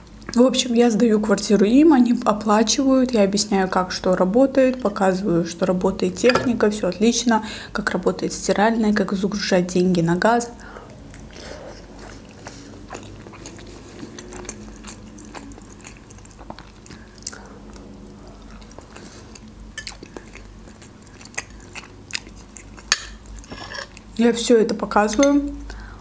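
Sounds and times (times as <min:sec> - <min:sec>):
person chewing soft food: 0:10.8 - 0:24.2.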